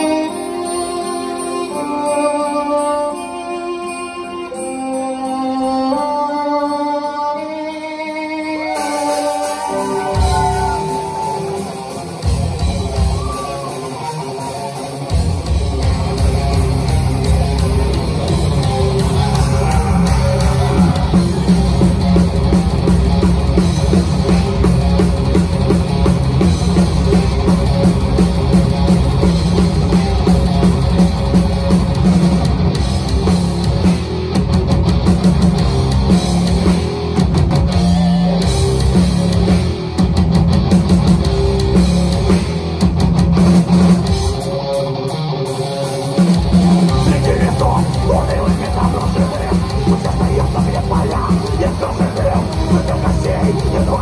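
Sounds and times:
distorted electric guitars: 0:00.0 - 0:54.0
loud live metal band: 0:07.4 - 0:54.0
drum kit: 0:08.7 - 0:54.0.

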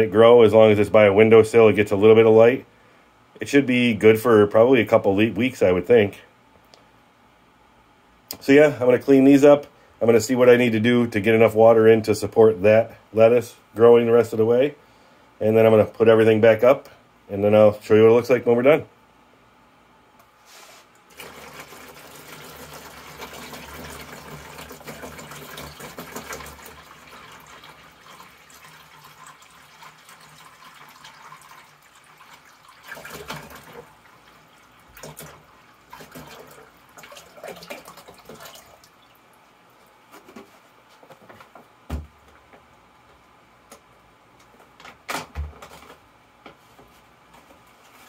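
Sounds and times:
water pouring into plastic tub: 0:21.1 - 0:39.3.

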